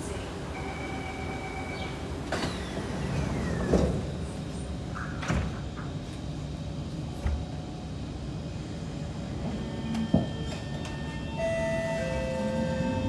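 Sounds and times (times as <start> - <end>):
train low hum: 0.0 - 13.0
train doors sliding and shutting: 1.2 - 6.2, 9.2 - 13.0.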